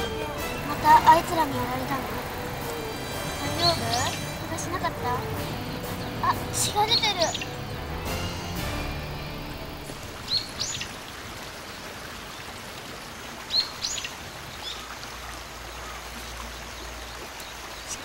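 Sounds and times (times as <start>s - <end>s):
high bird chirps: 2.8s - 8.0s.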